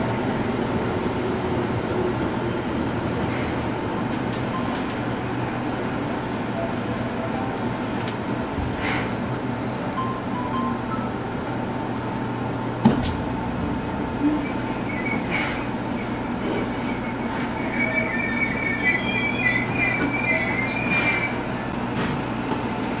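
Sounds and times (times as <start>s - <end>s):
train running on rails: 0.0s - 23.0s
high wavering wheel squeal: 14.1s - 21.8s.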